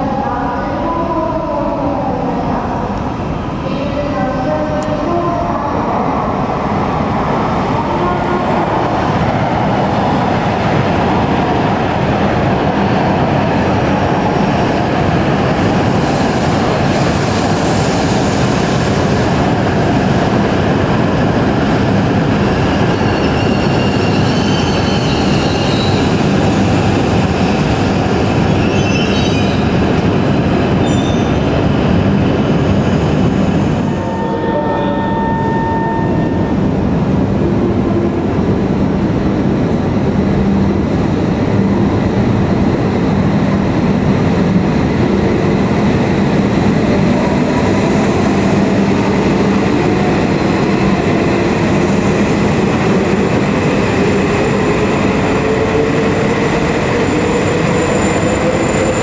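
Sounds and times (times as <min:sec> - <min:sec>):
high brake squeals: 0:30.8 - 0:31.4.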